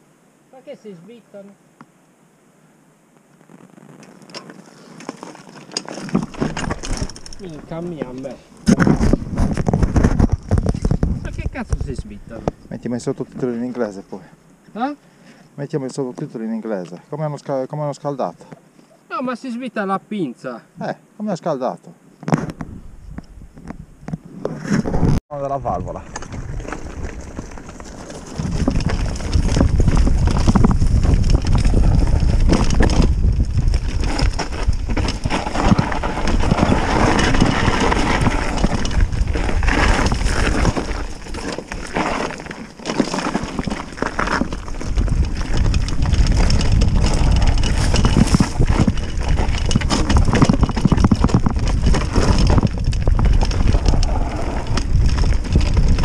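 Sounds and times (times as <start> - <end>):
bike tyres on dirt and rock: 3.1 - 18.6, 22.2 - 56.0
bike frame and chain rattling: 4.4 - 12.1, 26.1 - 56.0.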